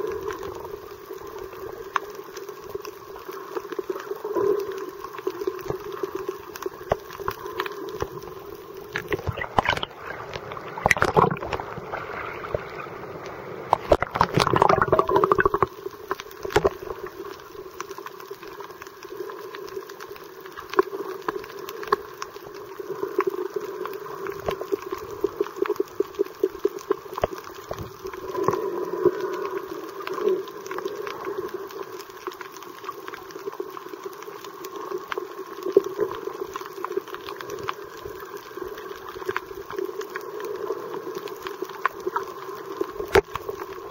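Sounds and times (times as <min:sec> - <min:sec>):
steady underwater hum: 0:00.0 - 0:43.9
underwater gurgling and bubbling: 0:00.0 - 0:43.9
sharp underwater clicks: 0:08.9 - 0:11.7, 0:13.7 - 0:17.1.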